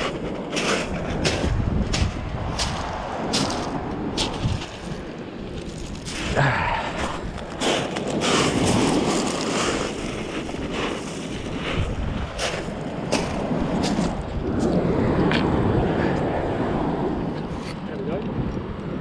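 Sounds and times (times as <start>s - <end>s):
footsteps on pebbles: 0.0s - 14.8s
waves on shingle beach: 0.0s - 17.4s
wind buffeting microphone: 0.0s - 19.0s.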